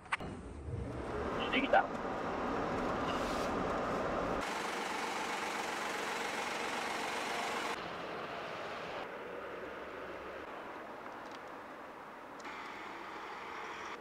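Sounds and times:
road noise inside van: 0.2s - 14.0s
steady outdoor hiss: 3.2s - 14.0s.

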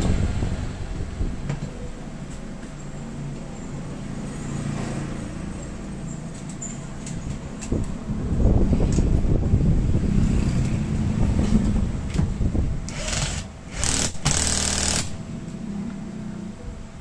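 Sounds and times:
low rumble: 7.8s - 13.3s
impact wrench hammering: 12.9s - 15.2s.

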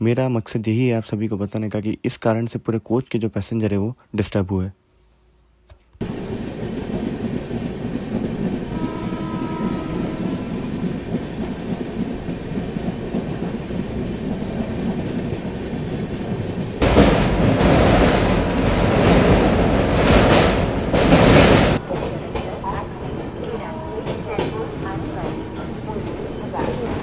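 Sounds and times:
train rumbling and rattling: 6.0s - 27.0s.

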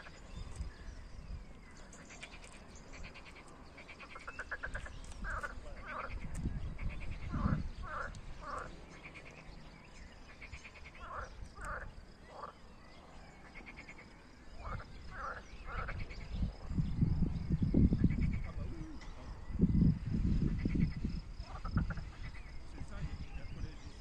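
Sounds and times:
frogs croaking: 0.0s - 24.0s
low rumble on microphone: 4.6s - 9.8s, 14.6s - 24.0s.

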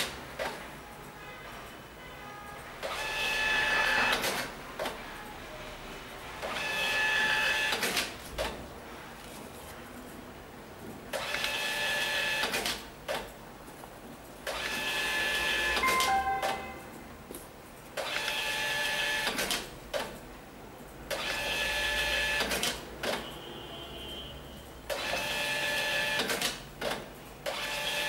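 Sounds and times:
short high tones: 15.8s - 17.2s.

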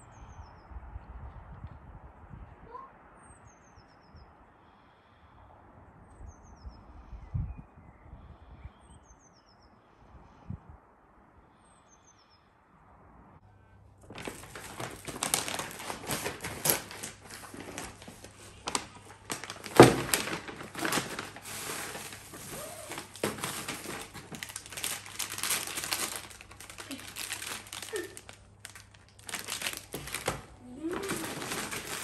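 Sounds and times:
faint birdsong: 0.0s - 1.5s, 2.3s - 14.0s
plastic bag crinkling: 14.0s - 32.0s.

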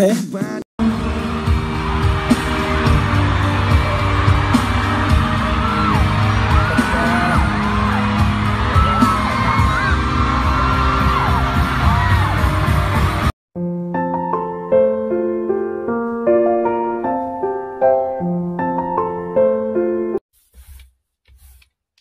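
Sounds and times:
loud pop music with heavy bass: 0.4s - 13.3s
fans screaming and yelling: 0.9s - 13.2s.

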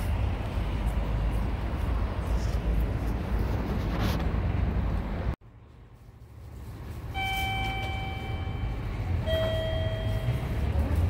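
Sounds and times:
wind rumble on microphone: 0.0s - 5.4s.

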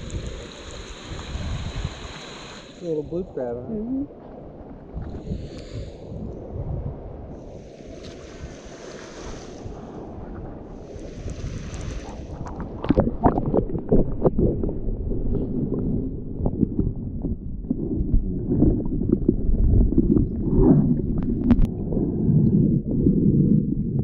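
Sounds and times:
washes of hiss: 0.0s - 3.2s, 5.2s - 6.1s, 7.4s - 10.1s, 10.7s - 12.8s
wind buffeting microphone: 3.0s - 8.8s, 9.4s - 24.0s.

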